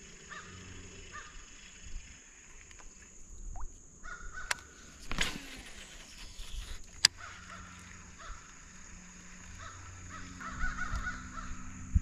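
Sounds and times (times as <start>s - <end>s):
crow cawing: 0.3s - 1.4s, 4.0s - 4.6s, 7.1s - 8.5s, 9.5s - 11.8s.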